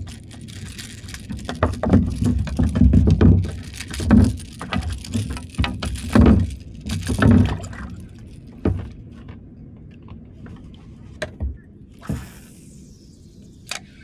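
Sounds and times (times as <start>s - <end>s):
tackle clicks and rattles: 0.0s - 8.9s.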